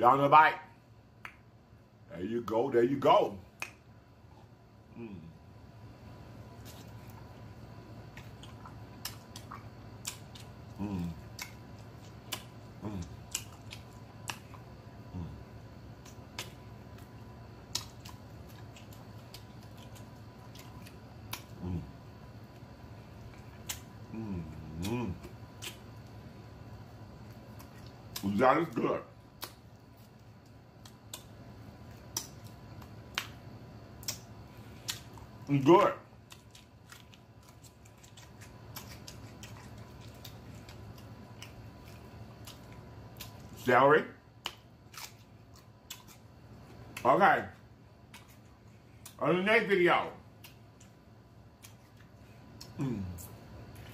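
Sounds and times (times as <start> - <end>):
wet chewing mouth sounds: 8.0 - 26.2, 34.0 - 43.6, 44.4 - 47.0.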